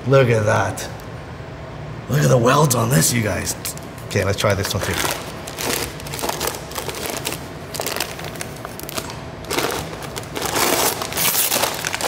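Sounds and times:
paper crinkling and tearing: 4.6s - 12.0s.

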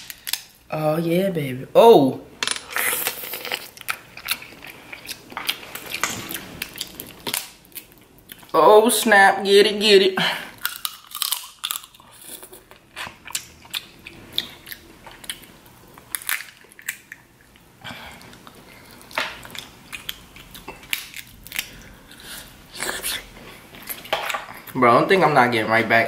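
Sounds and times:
crab shells cracking: 0.0s - 0.7s, 2.9s - 8.5s, 10.6s - 17.6s, 18.4s - 21.9s
person chewing and sucking: 2.8s - 8.5s, 10.6s - 24.8s.

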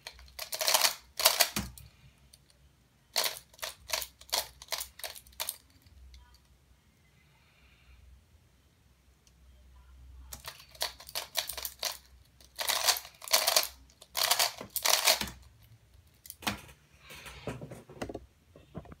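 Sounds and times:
puzzle clicking and rattling: 0.0s - 2.4s, 3.2s - 6.0s, 10.3s - 16.7s.

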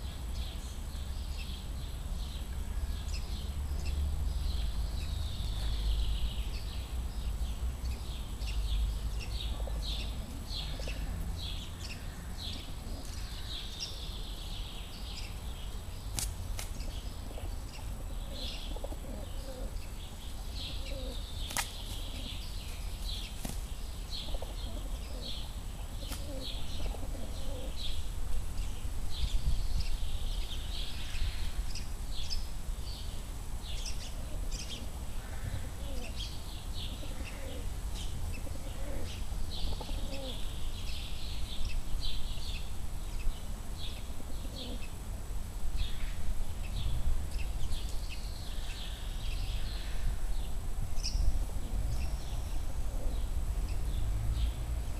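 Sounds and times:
small birds chirping: 0.0s - 45.0s
pigeons cooing: 9.5s - 11.2s, 12.0s - 13.7s, 17.2s - 19.8s, 20.6s - 22.4s, 24.1s - 27.9s, 34.1s - 36.2s, 36.8s - 40.5s, 43.9s - 44.9s, 51.4s - 53.3s
wings flapping: 21.5s - 22.1s.

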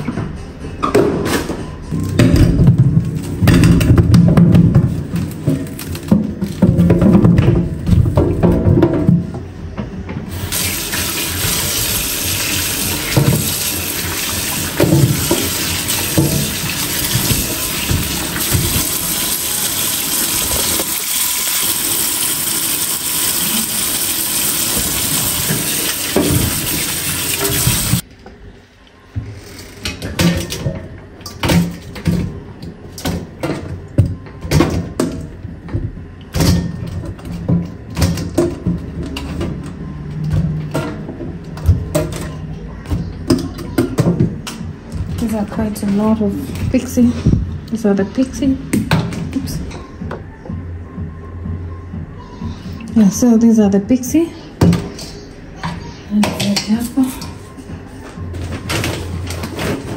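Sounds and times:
tap water running into sink: 10.3s - 28.0s.

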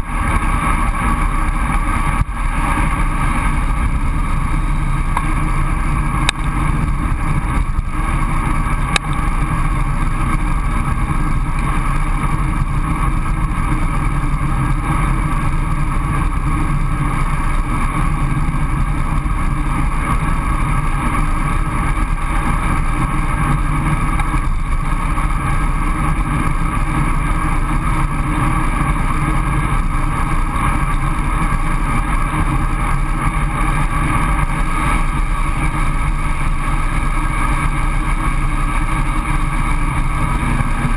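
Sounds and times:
road and tyre noise: 0.0s - 40.9s
wind rushing over microphone: 0.0s - 40.9s
faint tick: 6.2s - 6.5s, 8.9s - 9.2s.

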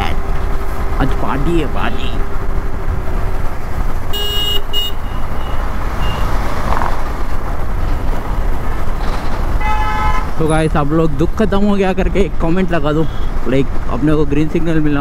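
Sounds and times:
motorcycle engine rumble: 0.0s - 14.1s
vehicle horn honking: 4.1s - 6.3s, 9.6s - 10.4s.

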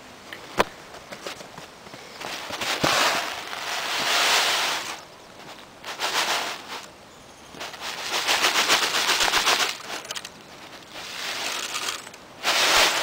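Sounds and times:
rice grains spilling: 2.4s - 6.9s, 7.6s - 13.0s
rice package rustling: 7.6s - 13.0s.

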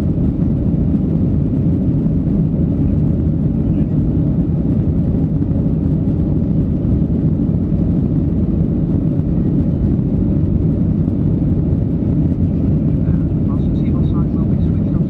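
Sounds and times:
jet engines rumbling in cabin: 0.0s - 15.0s
rushing airflow: 0.0s - 15.0s.

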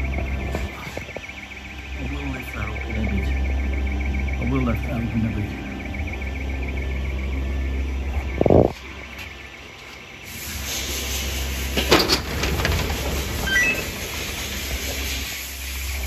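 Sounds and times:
faint wavering alarm bell tone: 0.0s - 9.7s
steady low hum: 0.0s - 16.0s.

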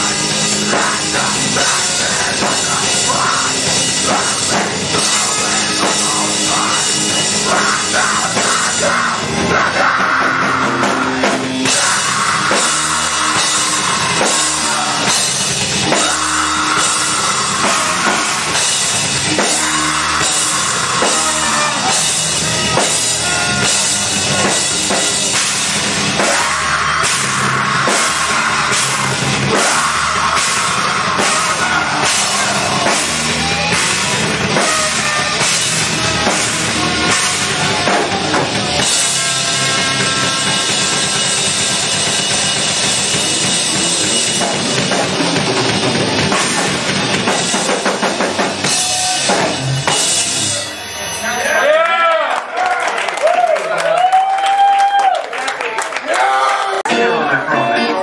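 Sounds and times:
electric guitar: 0.0s - 51.2s, 56.4s - 58.0s
drum kit: 0.0s - 51.9s
bass guitar: 0.0s - 52.0s, 56.1s - 58.0s.

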